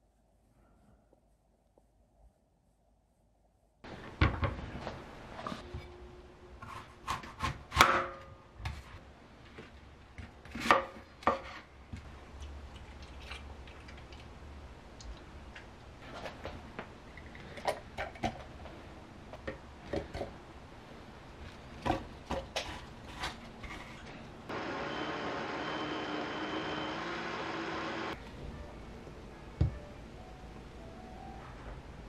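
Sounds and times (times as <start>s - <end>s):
knife cutting apple: 6.6s - 8.1s.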